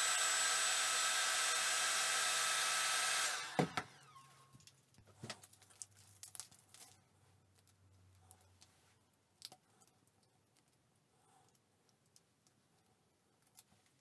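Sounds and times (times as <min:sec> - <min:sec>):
heat gun fan whine: 0:00.0 - 0:04.7.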